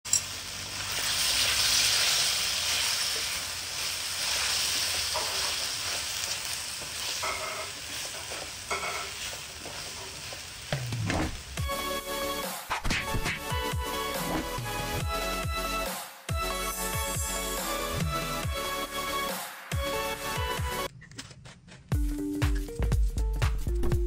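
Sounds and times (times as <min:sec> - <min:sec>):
food sizzling in a wok: 0:00.1 - 0:12.4
spatula stirring food: 0:02.7 - 0:10.6.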